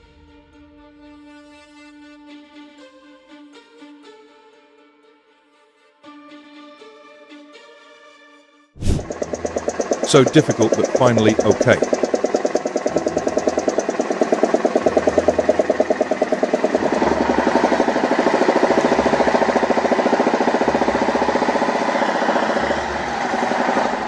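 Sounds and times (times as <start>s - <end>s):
truck diesel engine running hard: 8.9s - 24.0s.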